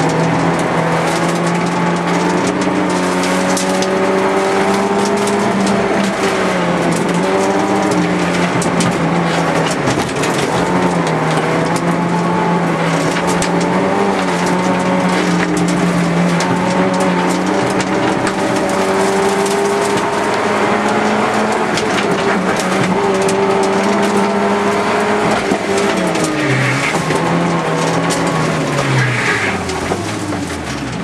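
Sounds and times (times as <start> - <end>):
car engine at high revs: 0.0 - 31.0
small ticks and rattles: 0.0 - 31.0
tyre squeal: 25.7 - 30.3.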